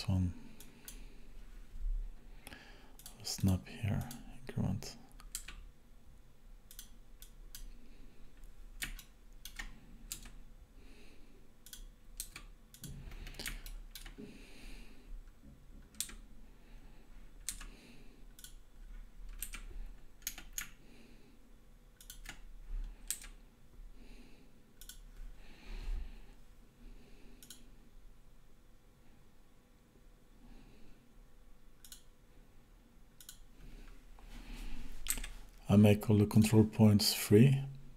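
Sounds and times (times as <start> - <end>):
computer keyboard clicking: 5.2 - 5.7, 8.8 - 10.4, 11.6 - 14.2, 15.8 - 16.2, 17.4 - 17.7, 19.3 - 20.8, 22.0 - 22.4, 23.0 - 23.4, 31.8 - 32.1.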